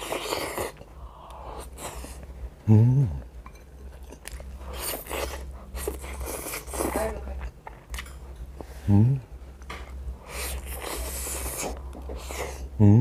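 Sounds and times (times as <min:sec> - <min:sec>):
man chewing food: 0:00.0 - 0:12.8
man humming with pleasure: 0:02.6 - 0:03.3, 0:08.8 - 0:09.3, 0:12.7 - 0:13.0.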